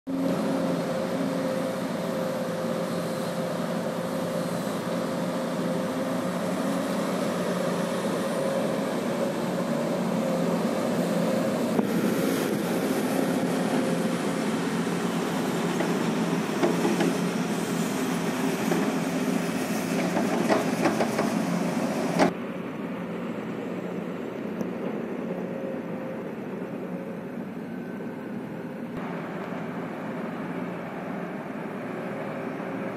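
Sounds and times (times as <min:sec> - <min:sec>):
diesel engine hum: 0:00.1 - 0:32.9.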